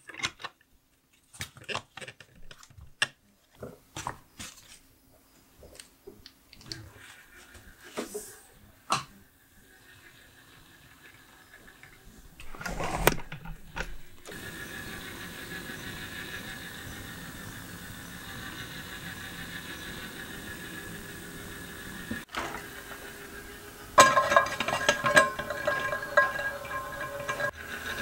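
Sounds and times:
plastic parts clicking and knocking: 0:00.0 - 0:04.2, 0:11.6 - 0:14.4
gear motor whirring: 0:09.6 - 0:23.9.

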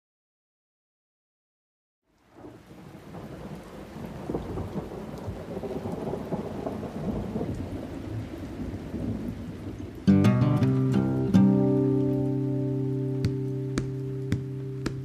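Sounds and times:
steady rain: 0:02.1 - 0:15.0
low rumble of thunder: 0:02.3 - 0:10.1.

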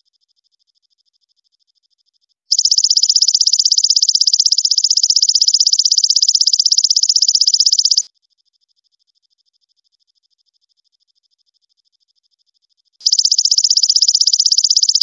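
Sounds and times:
faint insect trill: 0:00.0 - 0:15.0
katydid pulsing trill: 0:02.5 - 0:08.1, 0:13.0 - 0:15.0.

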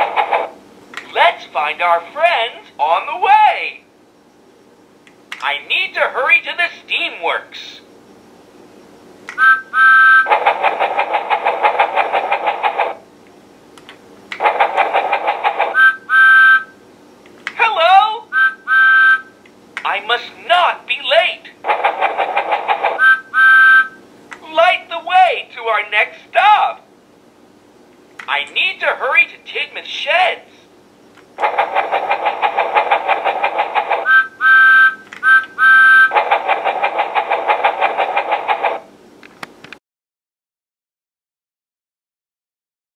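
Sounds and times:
electronic train whistle toots: 0:09.4 - 0:10.3, 0:15.7 - 0:16.8, 0:18.3 - 0:19.4, 0:23.0 - 0:24.0, 0:34.0 - 0:36.2
electronic train chuffing: 0:09.4 - 0:13.0, 0:14.4 - 0:16.8, 0:18.3 - 0:19.3, 0:21.6 - 0:24.0, 0:31.4 - 0:39.0.

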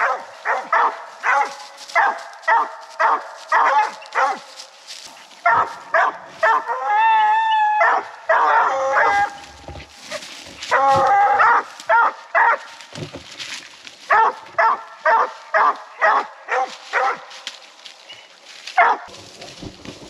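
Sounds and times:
hounds chop barking: 0:00.0 - 0:04.8, 0:05.4 - 0:12.9, 0:14.0 - 0:17.6, 0:18.7 - 0:19.1
hound long bawl: 0:05.5 - 0:12.6.

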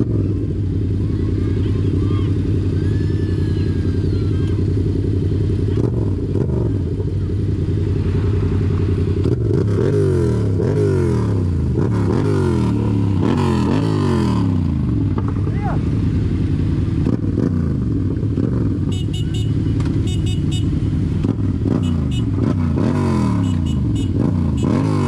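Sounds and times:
engine idling and revving: 0:00.0 - 0:25.0.

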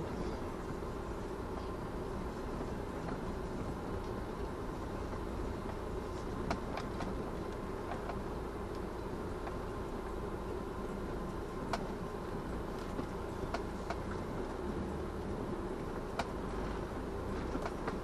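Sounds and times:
vehicle road noise: 0:00.0 - 0:18.0
light clicks or rattles: 0:17.4 - 0:18.0.

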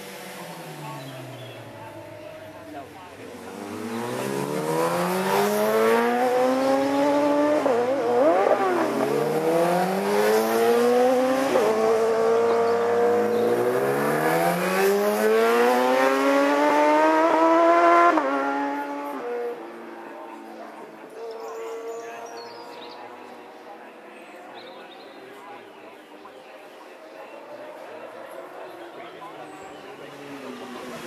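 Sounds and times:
motorcycle engine revving hard: 0:03.3 - 0:19.6.

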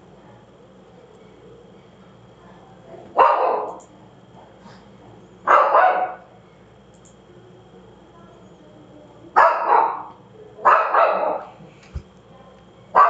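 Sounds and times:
dog barking: 0:03.2 - 0:03.8, 0:05.5 - 0:06.3, 0:09.4 - 0:11.5.

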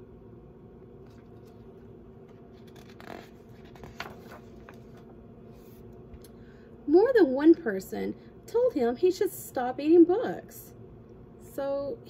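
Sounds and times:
low room hum: 0:00.0 - 0:12.0
book pages rustling: 0:01.0 - 0:06.0.

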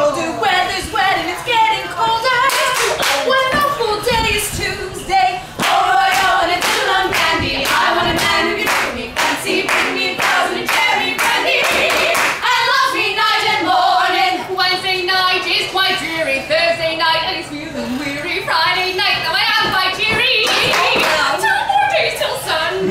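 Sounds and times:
women singing in harmony: 0:00.0 - 0:22.9
hand clapping: 0:02.5 - 0:03.3.

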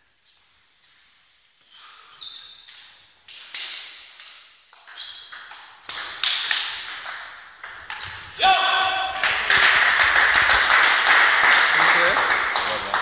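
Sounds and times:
table tennis ball pinging: 0:04.7 - 0:08.3.

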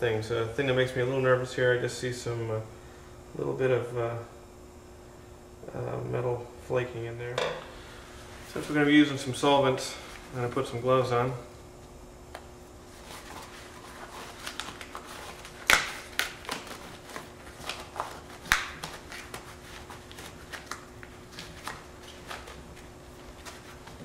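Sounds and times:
rubber gloves rustling and stretching: 0:12.8 - 0:24.0
rubber glove snaps: 0:15.6 - 0:16.7, 0:17.6 - 0:19.4.

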